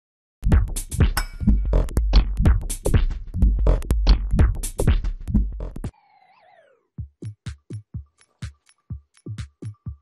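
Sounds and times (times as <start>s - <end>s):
drum machine beat: 0.4s - 5.9s, 7.0s - 10.0s
heavy bass: 0.4s - 5.9s.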